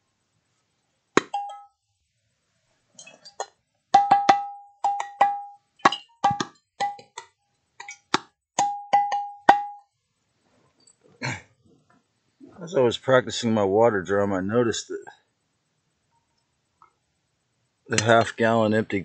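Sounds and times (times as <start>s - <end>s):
glass jug ringing: 1.2s - 1.8s, 4.0s - 7.1s, 8.6s - 9.9s
glass water drum hits: 4.0s - 7.1s, 8.6s - 9.8s.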